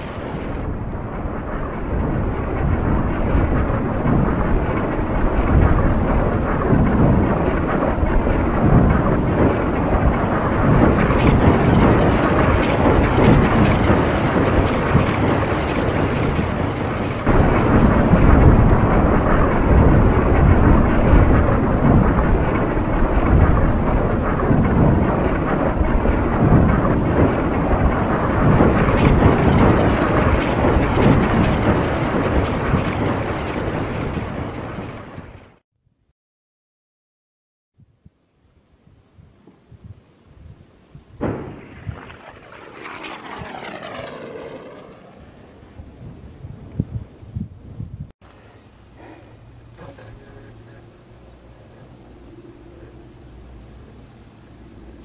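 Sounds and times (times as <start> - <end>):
cannons firing in barrage: 0.2 - 35.3, 41.2 - 44.9.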